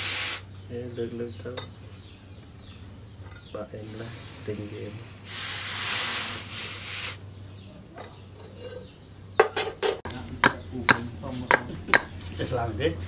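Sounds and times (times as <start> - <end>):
hot blade hissing in water: 0.0 - 0.4, 3.9 - 7.2
metal clinking on stone: 8.0 - 10.6.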